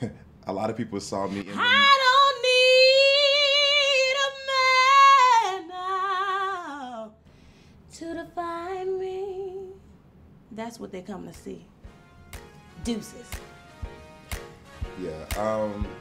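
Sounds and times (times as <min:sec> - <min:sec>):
woman singing a cappella: 0:01.4 - 0:07.2, 0:07.9 - 0:10.0.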